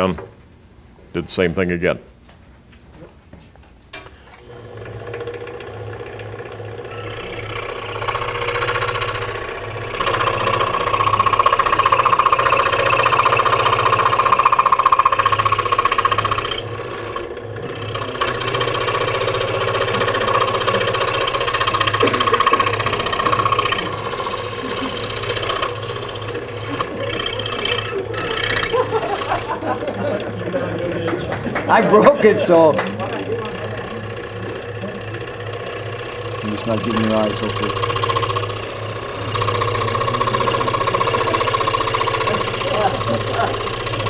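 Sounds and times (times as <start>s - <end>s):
scroll saw motor hum: 4.4s - 44.0s
saw blade rasping in wood: 5.3s - 30.4s, 32.6s - 44.0s.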